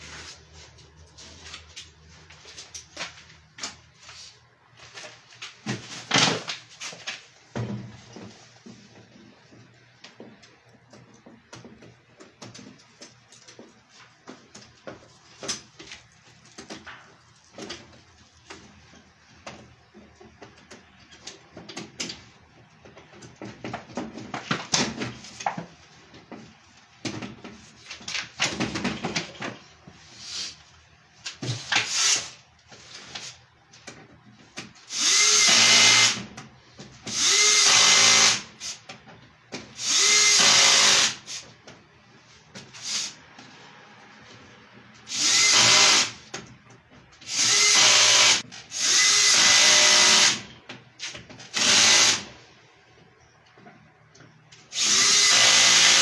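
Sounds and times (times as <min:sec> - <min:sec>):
cordless drill running: 0:34.9 - 0:36.2, 0:37.1 - 0:38.5, 0:39.8 - 0:41.2, 0:45.1 - 0:46.2, 0:47.3 - 0:50.4, 0:51.5 - 0:52.3, 0:54.7 - 0:56.0.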